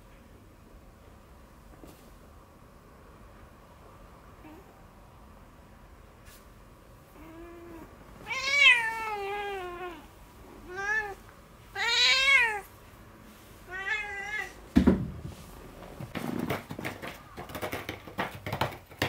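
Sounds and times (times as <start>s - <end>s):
cat meowing: 7.2s - 12.7s, 13.7s - 14.6s
thump: 14.7s - 15.4s.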